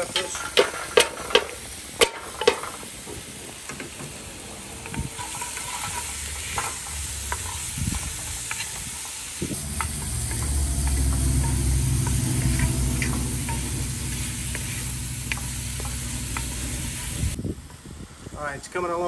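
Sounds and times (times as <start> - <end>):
vegetables sizzling in grease: 0.0 - 17.4
wooden spoon stirring and scraping: 4.8 - 17.3
low rumble: 6.0 - 17.4.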